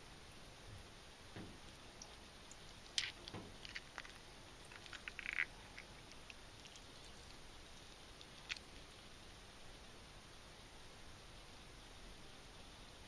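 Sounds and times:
wet squishing of fish innards: 2.0s - 8.9s.

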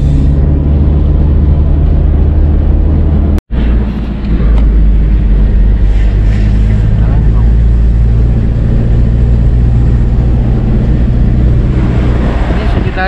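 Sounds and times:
car engine and road noise drone: 0.0s - 13.0s.

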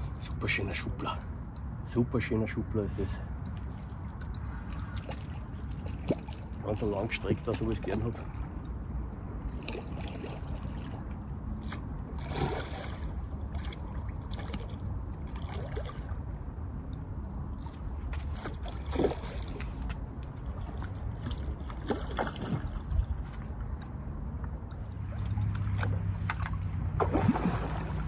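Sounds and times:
water splashing at edge: 3.8s - 8.6s, 9.5s - 16.2s, 17.6s - 24.0s, 25.0s - 28.0s.

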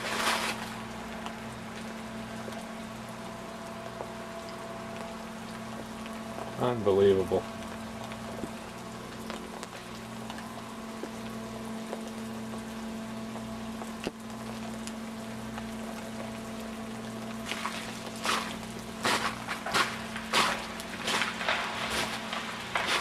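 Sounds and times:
footsteps crunching on snow: 0.0s - 0.8s, 17.4s - 23.0s
steady low hum: 0.0s - 23.0s.

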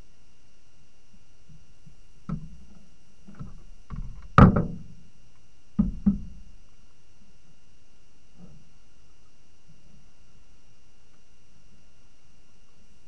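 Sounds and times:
paddle knocking against hull: 3.3s - 4.9s, 5.8s - 6.4s.

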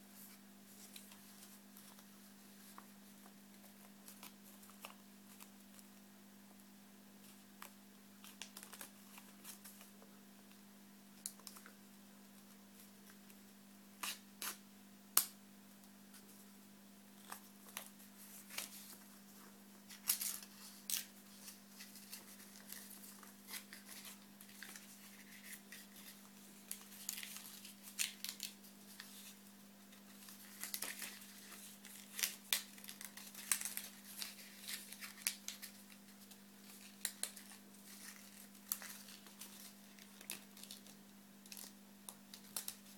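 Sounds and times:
low steady hum: 0.0s - 42.9s
paper crackling and rustling: 0.2s - 5.9s, 7.2s - 10.0s, 17.2s - 42.9s.

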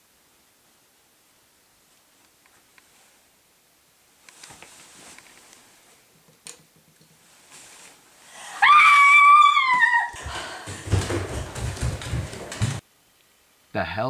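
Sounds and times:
bedding rustling: 4.2s - 6.1s, 7.2s - 12.8s
woman screaming: 8.4s - 10.6s.

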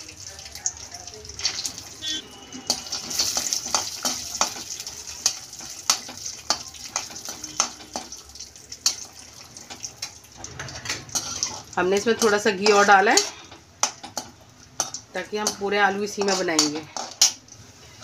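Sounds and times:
peanuts sizzling in pan: 0.0s - 18.0s
metal spatula scraping pan: 10.5s - 14.2s, 14.8s - 17.4s.

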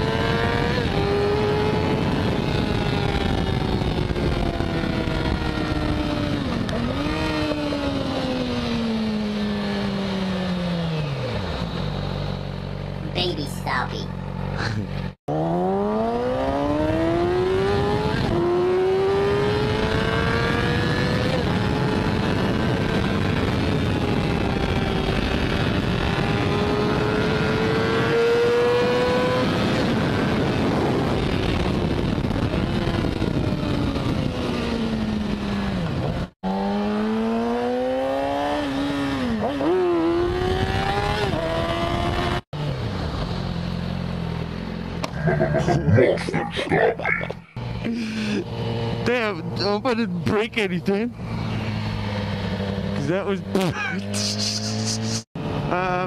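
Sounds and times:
wind noise: 0.0s - 9.1s, 16.4s - 36.3s
motorcycle engine accelerating: 0.0s - 13.3s, 14.1s - 56.0s.

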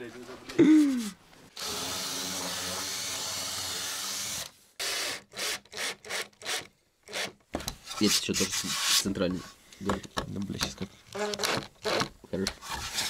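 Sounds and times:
cordless drill driving a screw: 1.6s - 7.3s.

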